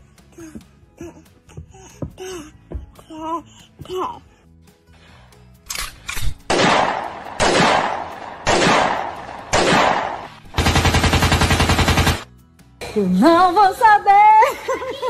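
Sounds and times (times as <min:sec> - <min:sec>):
gunshot blasts: 0:06.5 - 0:10.3.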